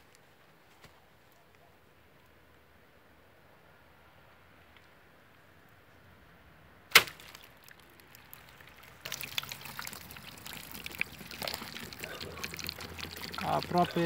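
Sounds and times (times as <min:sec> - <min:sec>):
bow shot crack: 0:06.9 - 0:07.4.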